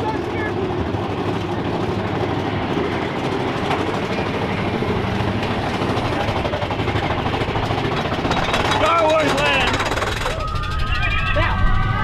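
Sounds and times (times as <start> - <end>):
roller coaster cars rattling: 0.0 - 12.0.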